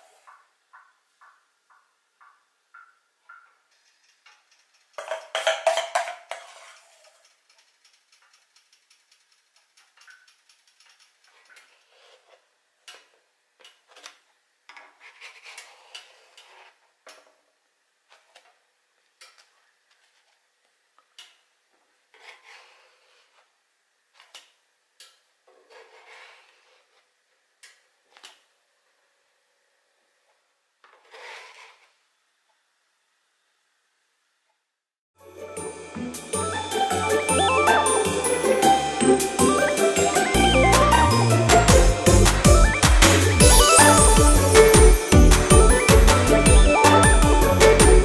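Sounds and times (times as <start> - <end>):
spatula scraping griddle: 3.8 - 7.3, 10.8 - 17.2, 22.1 - 23.5, 25.5 - 27.1, 30.9 - 32.0.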